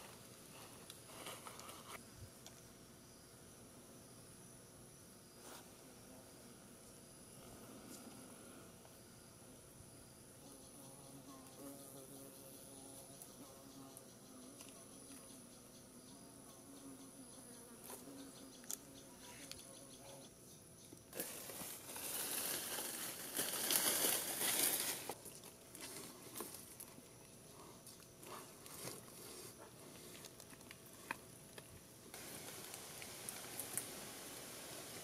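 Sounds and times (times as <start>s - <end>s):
leaves rustling: 21.1s - 27.0s, 28.3s - 35.0s.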